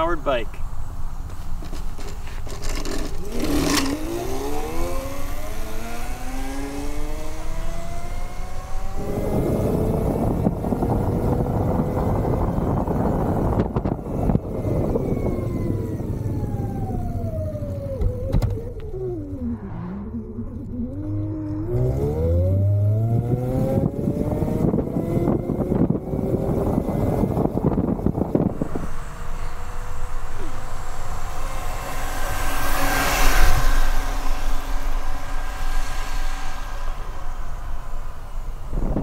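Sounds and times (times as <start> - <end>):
electric motor whining: 2.8 - 39.0
rushing noise: 18.9 - 23.0, 28.1 - 39.0.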